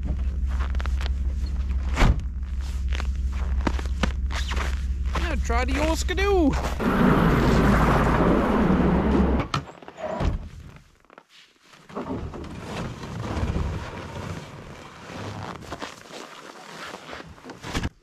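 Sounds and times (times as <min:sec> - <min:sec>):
wooden ramp scraping and knocking: 0:11.9 - 0:15.1.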